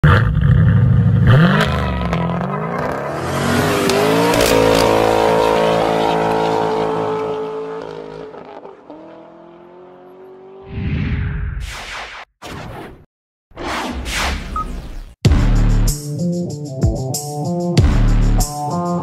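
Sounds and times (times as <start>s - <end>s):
car engine revving: 0.4s - 10.6s.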